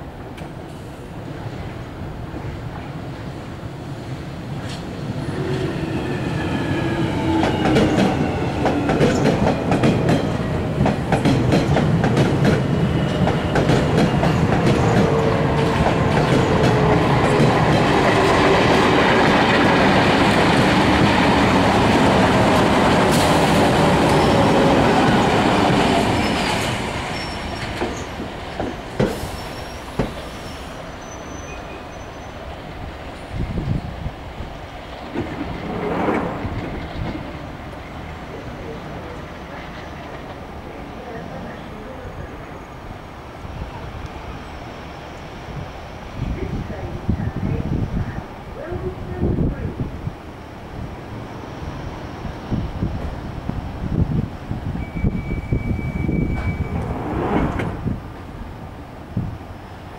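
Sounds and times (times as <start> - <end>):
train wheels clicking over rail joints: 7.4 - 24.2, 25.1 - 30.5.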